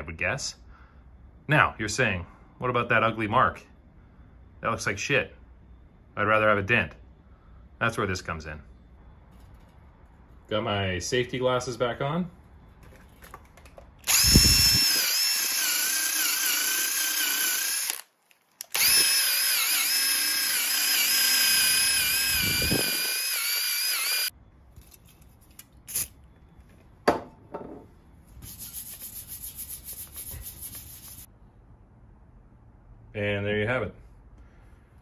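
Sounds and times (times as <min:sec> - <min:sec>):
power tool whining: 0:14.0 - 0:24.3.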